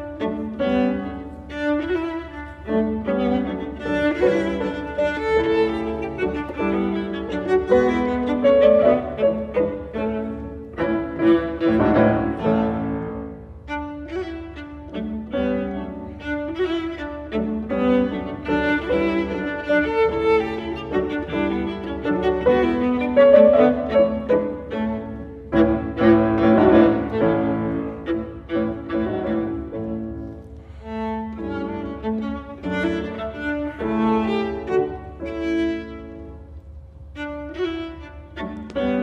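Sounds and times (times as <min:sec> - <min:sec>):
bowed viola: 0:00.0 - 0:39.0
piano chords: 0:00.0 - 0:39.0.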